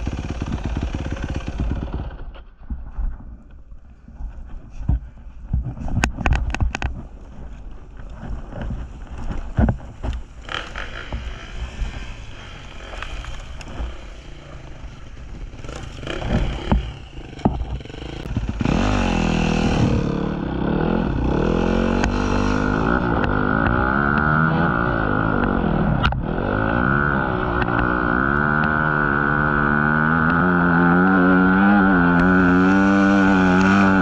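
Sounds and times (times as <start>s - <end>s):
dirt bike engine revving: 0.0s - 2.2s, 10.0s - 34.0s
knocks and clatter through brush: 0.0s - 20.2s.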